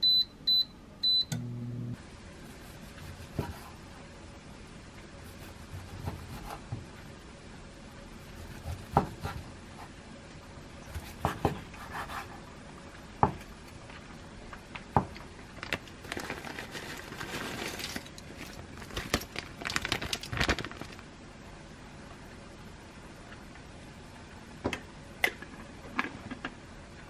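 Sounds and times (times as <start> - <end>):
rustling: 15.6 - 21.0.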